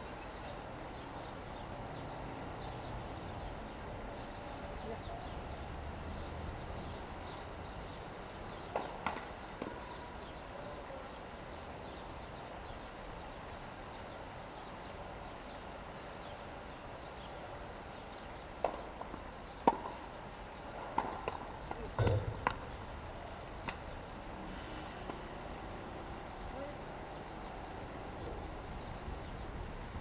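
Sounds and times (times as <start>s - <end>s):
tennis ball bouncing: 19.6s - 20.0s, 20.9s - 22.7s.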